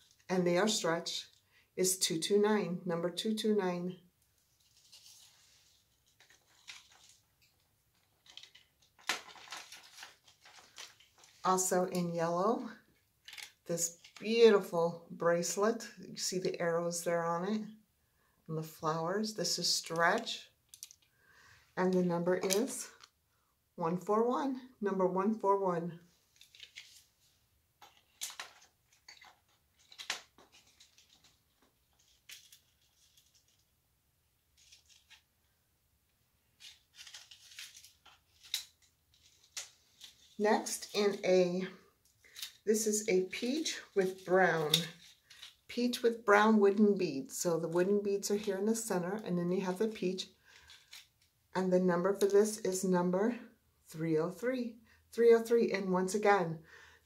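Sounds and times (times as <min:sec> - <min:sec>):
jewelry small clicks and rustles: 0:06.2 - 0:11.5, 0:13.2 - 0:14.2, 0:20.0 - 0:21.1, 0:27.8 - 0:33.7.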